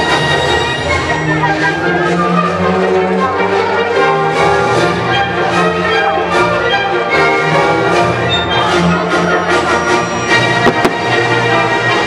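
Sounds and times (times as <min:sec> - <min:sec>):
orchestral show music with brass: 0:00.0 - 0:12.0
fireworks popping: 0:10.6 - 0:11.2.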